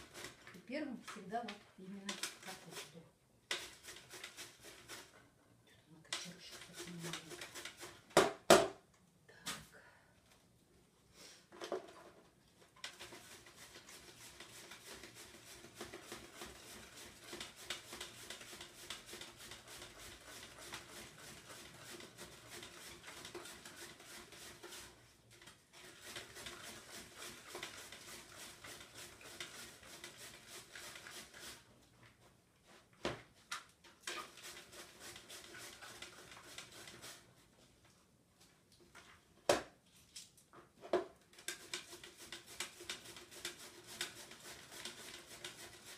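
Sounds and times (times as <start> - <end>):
cabbage grating rasps: 0.0 - 0.6, 2.1 - 5.2, 6.4 - 8.0, 12.9 - 31.7, 34.0 - 37.3, 41.4 - 45.9.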